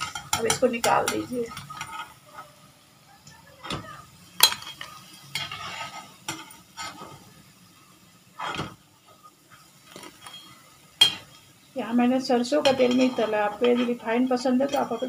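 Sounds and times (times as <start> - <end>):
faint oil sizzling: 0.0 - 15.0
steel skimmer scraping a pan: 1.0 - 2.6, 4.5 - 7.3, 8.3 - 8.7, 9.5 - 11.3, 12.5 - 15.0.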